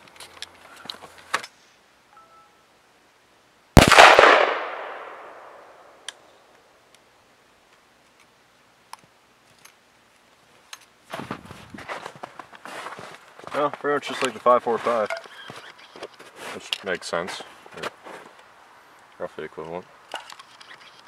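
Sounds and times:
rifle shot with echo: 3.8 - 6.0.

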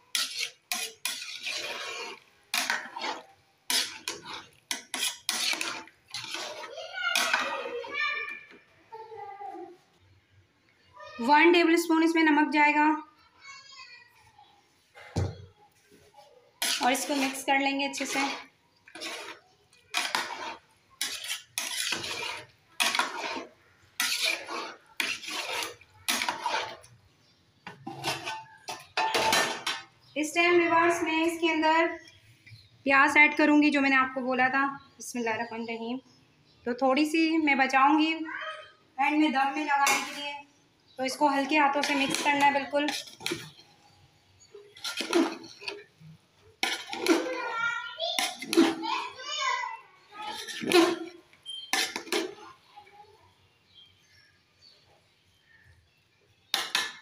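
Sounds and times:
metal spoon scraping metal pot: 0.0 - 8.6, 16.6 - 27.0, 27.6 - 30.1, 39.1 - 49.2, 50.0 - 52.5.

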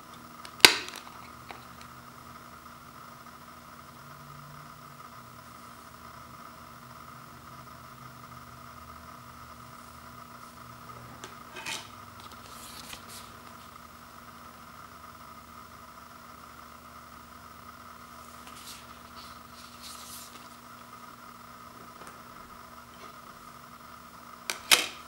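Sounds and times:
steady background hum: 0.0 - 25.0
cardboard rustling: 18.3 - 20.8.

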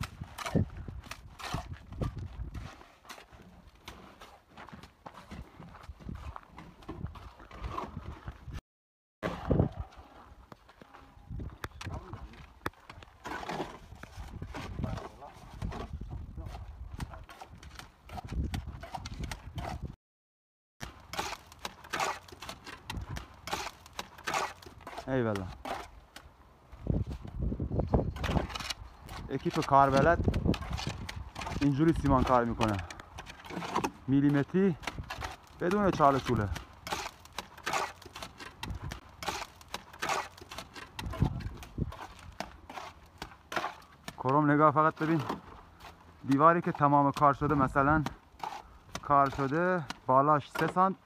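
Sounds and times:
trowel scraping mortar: 0.0 - 4.4, 20.8 - 26.0, 28.0 - 44.3, 44.9 - 50.9.

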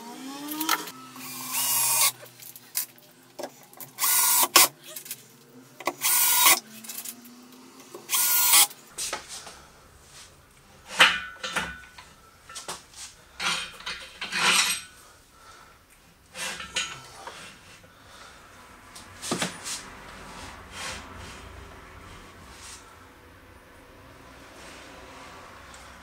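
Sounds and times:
cordless drill running: 0.0 - 2.2, 4.0 - 4.7, 6.0 - 6.6, 8.1 - 8.7.

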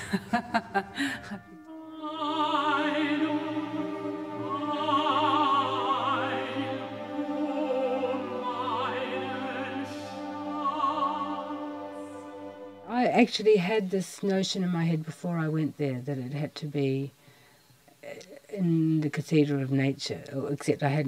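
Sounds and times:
orchestral accompaniment: 0.0 - 13.7
operatic singing with vibrato: 0.0 - 15.0.

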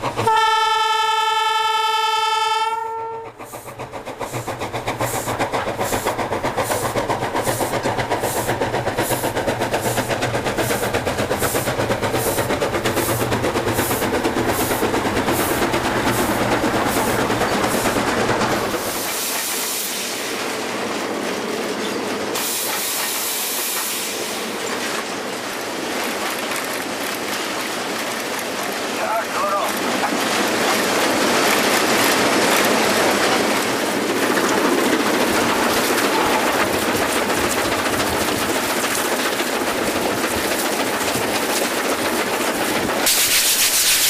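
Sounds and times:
steam locomotive exhaust chuffing: 0.0 - 20.6, 29.7 - 44.0
rushing hiss and rumble in cab: 35.0 - 44.0.

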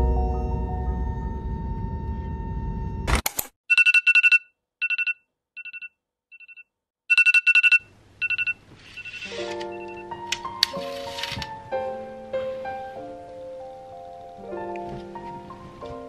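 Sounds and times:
soft music with sustained notes: 0.0 - 1.9, 9.3 - 16.0
electronic alarm beeping: 3.7 - 10.1.

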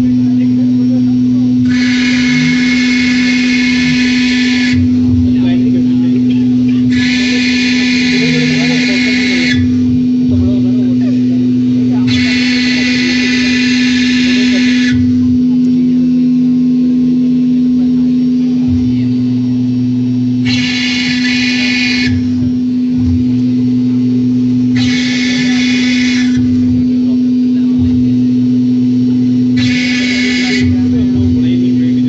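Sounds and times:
engraving machine spindle whine: 0.0 - 32.0
harsh high rasp: 1.6 - 5.0, 6.8 - 10.2, 12.0 - 15.2, 20.4 - 22.4, 24.7 - 26.7, 29.6 - 30.9.

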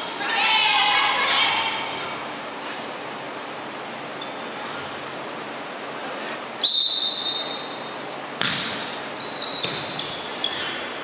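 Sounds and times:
sports hall noise: 0.0 - 11.0
referee whistle blast: 6.6 - 7.8
volleyball smack: 8.4 - 8.9.

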